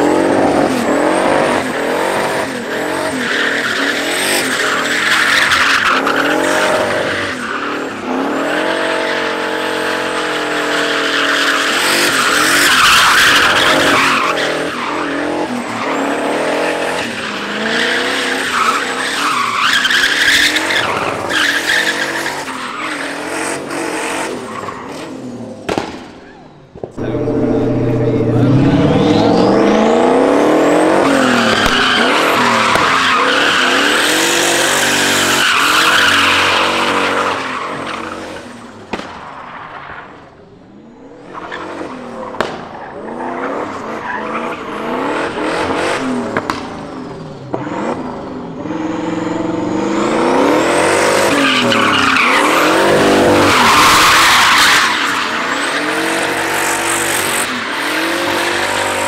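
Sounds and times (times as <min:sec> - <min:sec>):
car engine revving: 0:26.8 - 0:59.0.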